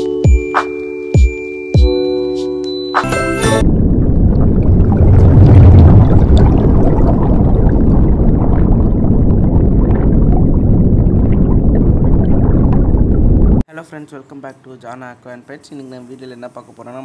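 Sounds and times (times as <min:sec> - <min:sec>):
underwater churning rumble: 0:03.6 - 0:13.6
bubble pops and crackles: 0:04.0 - 0:13.6.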